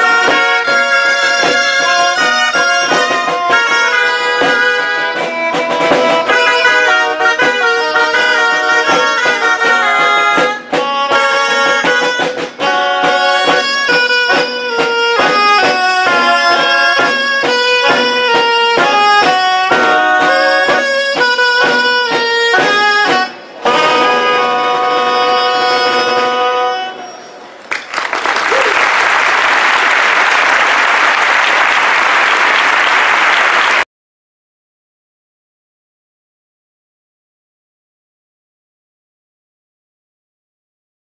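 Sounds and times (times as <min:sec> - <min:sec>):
side drums beating: 0:00.0 - 0:25.2
shawm band playing folk tune: 0:00.0 - 0:33.8.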